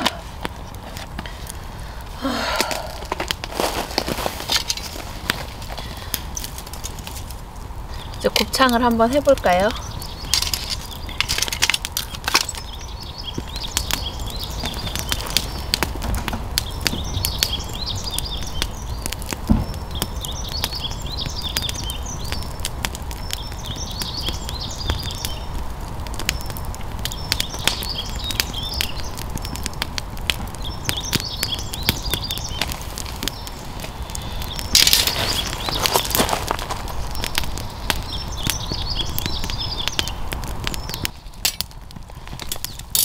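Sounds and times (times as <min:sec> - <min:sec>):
birds chirping: 0:00.0 - 0:42.9
wood fire crackling and popping: 0:00.0 - 0:43.0.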